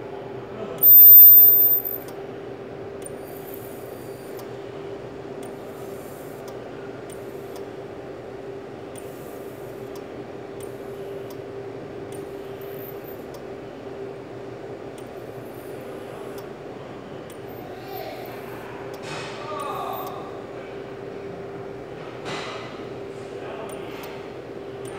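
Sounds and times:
high-pitched whine: 0.8 - 2.0.

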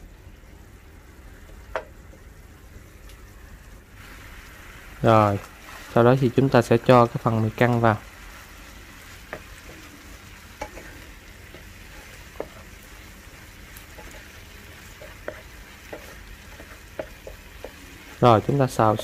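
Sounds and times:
frying sizzle: 0.0 - 19.0
spatula knocking against pan: 14.9 - 17.9.

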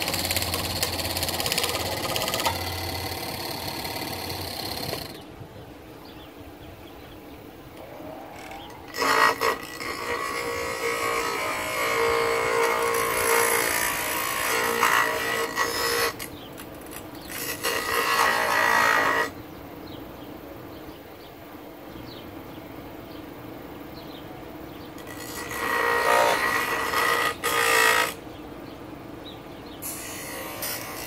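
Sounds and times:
grinder motor hum: 0.0 - 5.3, 8.3 - 16.3
wood grinding on wheel: 0.0 - 5.3, 7.8 - 19.4, 25.0 - 28.2, 29.8 - 31.0.

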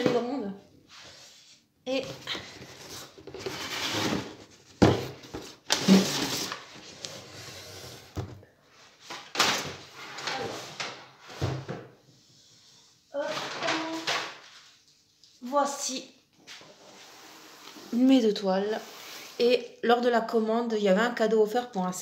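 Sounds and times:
cardboard boxes scraping: 2.0 - 8.3.

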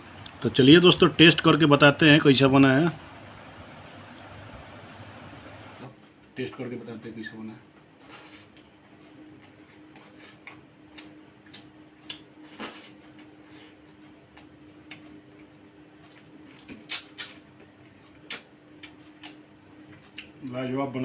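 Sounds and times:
faint steady hum: 0.0 - 21.0
person eating with wet mouth clicks: 10.4 - 12.3, 14.3 - 19.4.

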